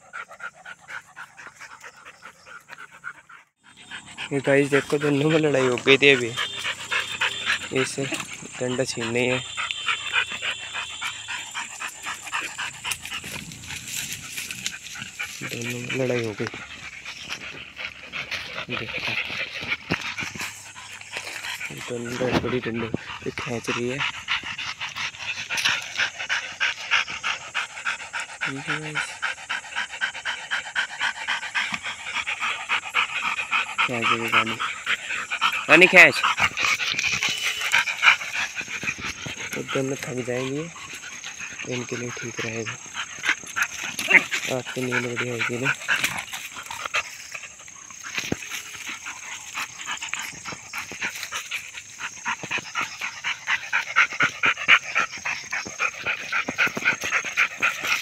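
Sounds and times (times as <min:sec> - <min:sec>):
dogs panting: 0:00.0 - 0:58.0
scuffling on dry grass: 0:11.9 - 0:26.2.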